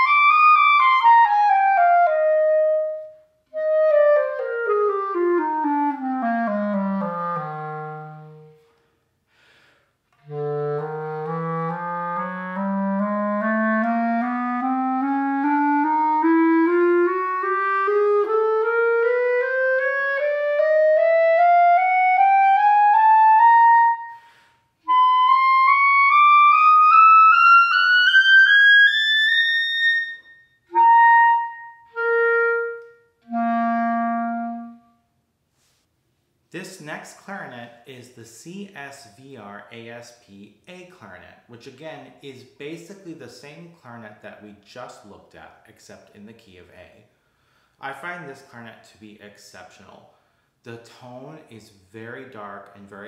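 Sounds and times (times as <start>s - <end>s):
clarinet playing a scale: 0.0s - 8.7s, 10.2s - 35.1s.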